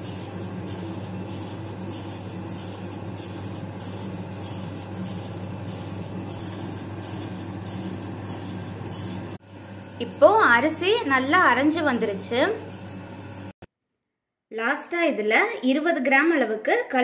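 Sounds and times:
wet grinder motor hum: 0.0 - 13.6.

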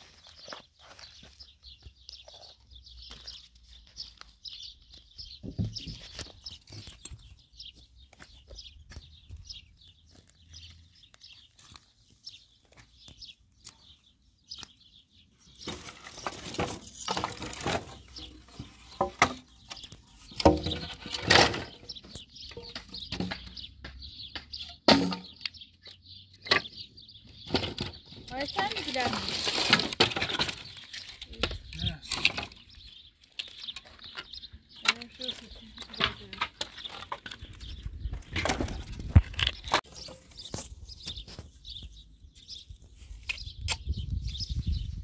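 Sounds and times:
small birds chirping: 0.0 - 45.0
wooden poles knocking together: 5.4 - 7.3, 15.6 - 25.6, 26.4 - 41.5.

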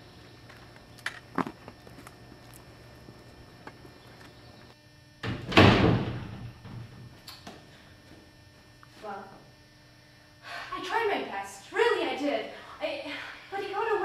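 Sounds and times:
loud noisy thud: 5.2 - 6.9.

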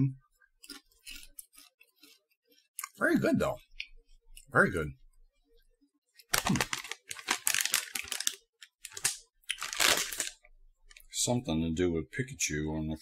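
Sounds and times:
plastic packaging crinkling: 6.3 - 10.4.

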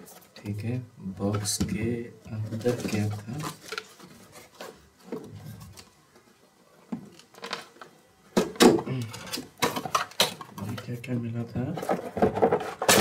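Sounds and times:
cardboard box rustling and scraping: 2.4 - 5.7.

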